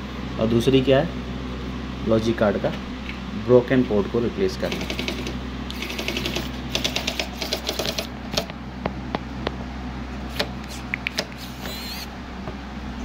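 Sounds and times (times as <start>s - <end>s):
electric screwdriver clicking: 10.3s - 12.1s.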